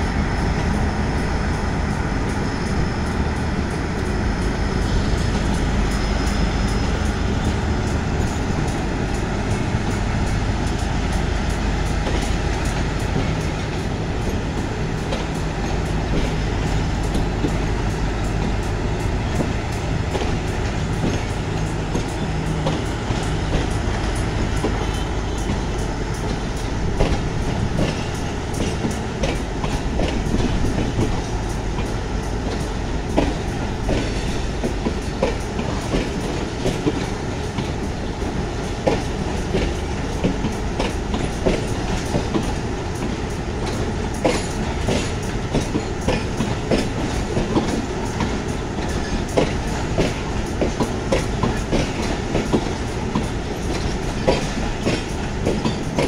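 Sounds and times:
train running noise: 0.0 - 56.0
wheels clicking over rail joints: 26.2 - 56.0.

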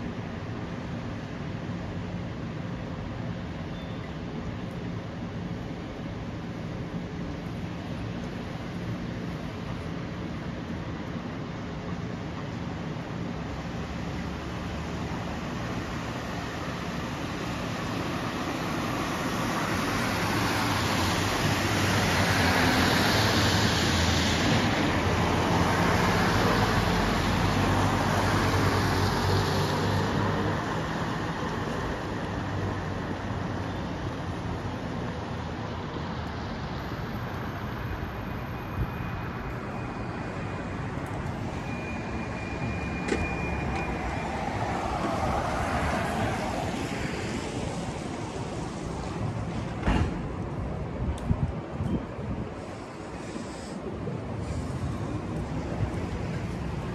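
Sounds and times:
tyre hiss on wet road: 13.7 - 33.2, 44.0 - 49.7, 52.5 - 56.8.

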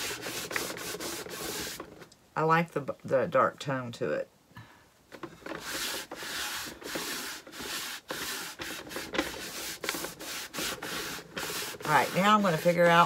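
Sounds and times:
cloth rag rubbing wooden board: 0.0 - 2.0, 5.4 - 13.0.

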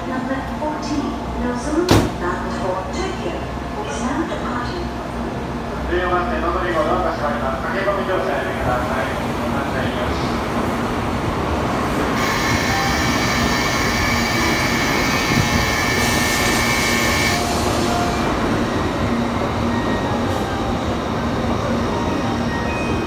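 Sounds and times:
train rumbling to a stop: 0.0 - 23.0.

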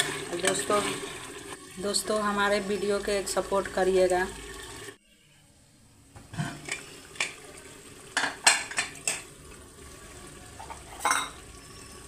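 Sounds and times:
metal lid and ladle clinking on pot: 8.2 - 9.3, 10.6 - 11.4.

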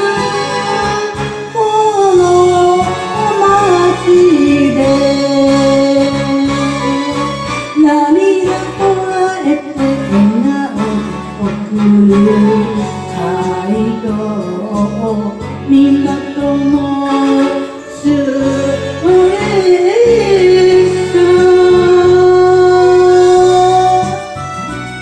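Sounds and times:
person singing: 0.0 - 24.4
guitar-led backing music: 0.0 - 25.0.

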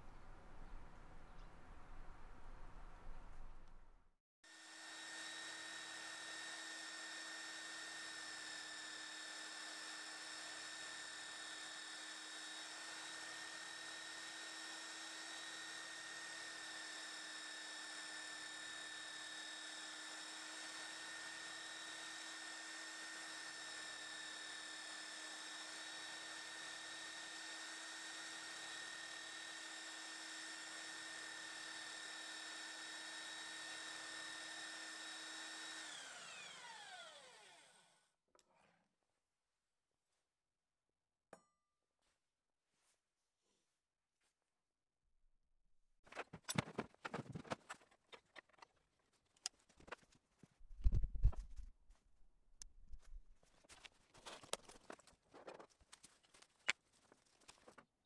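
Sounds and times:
belt sander whining: 4.5 - 37.9.

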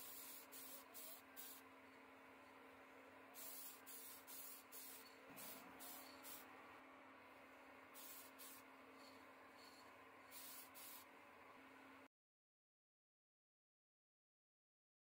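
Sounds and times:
spray paint can hissing: 0.0 - 1.7, 3.3 - 6.5, 7.9 - 11.1.

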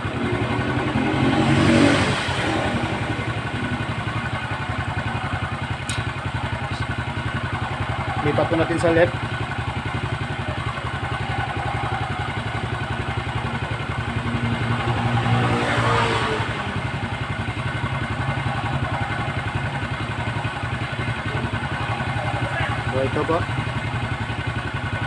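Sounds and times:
motorcycle engine idling: 0.0 - 25.0.

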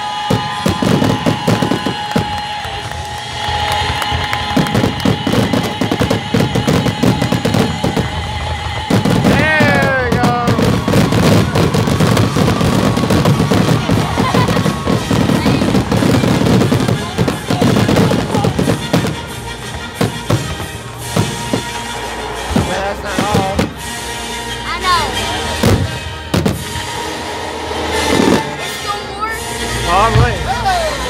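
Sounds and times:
music playing: 0.0 - 31.0.

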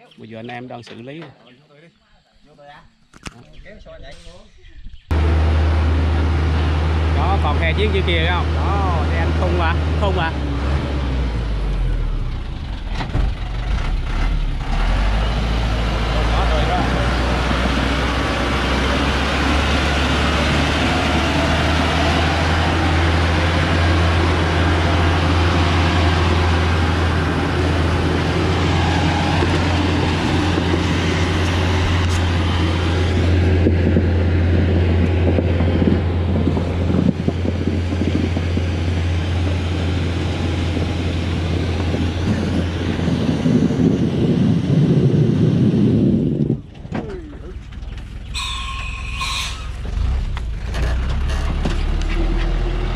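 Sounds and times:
truck engine running hard: 5.1 - 52.9.

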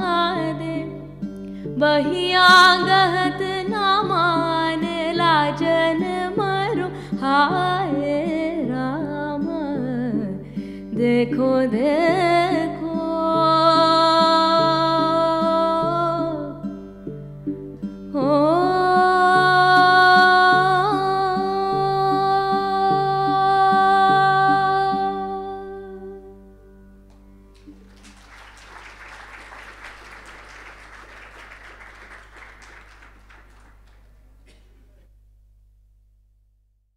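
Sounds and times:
audience applause: 27.6 - 34.1.

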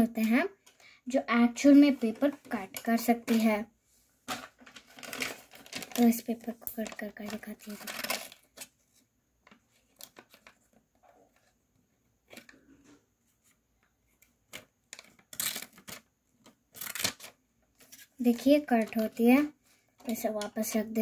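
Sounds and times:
paper rustling: 4.3 - 11.6, 12.2 - 20.8.

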